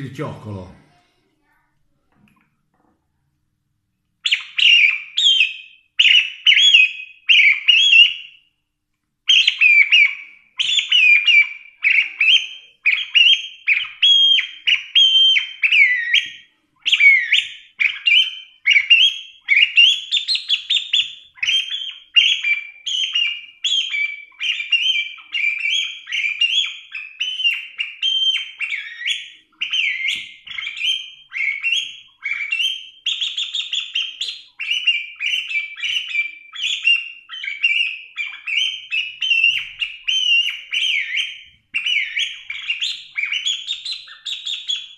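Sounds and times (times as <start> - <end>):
bird-call whistle chirping: 4.2 - 8.5, 9.3 - 44.9.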